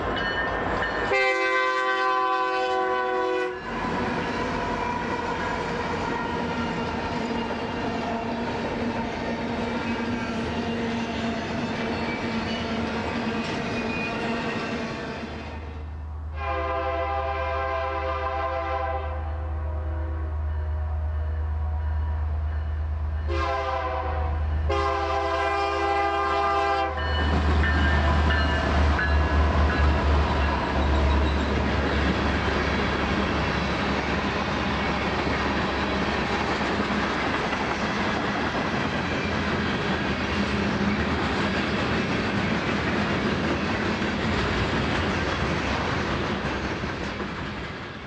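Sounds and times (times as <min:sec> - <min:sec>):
train wheels on rails: 0:00.0 - 0:16.0, 0:20.4 - 0:48.0
locomotive horn blasts: 0:01.1 - 0:03.7, 0:16.4 - 0:21.3, 0:23.3 - 0:27.2.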